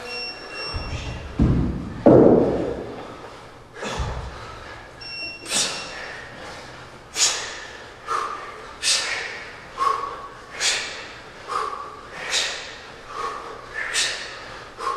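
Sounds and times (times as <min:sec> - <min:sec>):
kettlebell thudding on rubber mat: 0:00.7 - 0:03.2.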